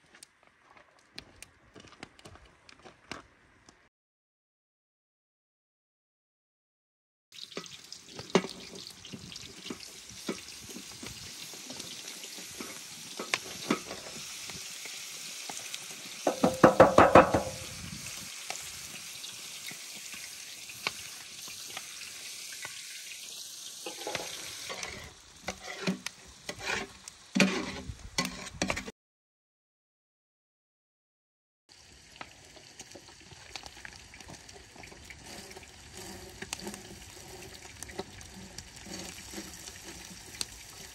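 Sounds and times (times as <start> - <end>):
food sizzling in a pot: 7.3 - 28.8, 31.7 - 40.9
metal spoon scraping a pot: 23.8 - 28.9, 35.2 - 40.8.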